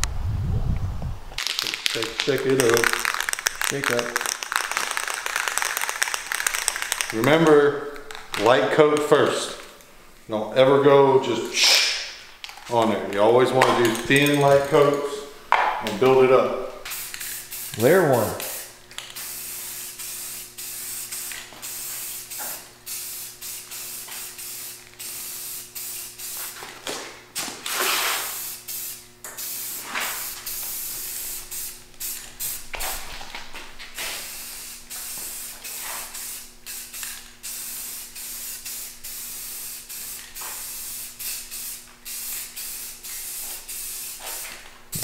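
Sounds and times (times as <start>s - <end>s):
spray paint can hissing: 1.4s - 8.4s, 16.8s - 26.6s, 27.6s - 33.1s, 34.0s - 45.0s.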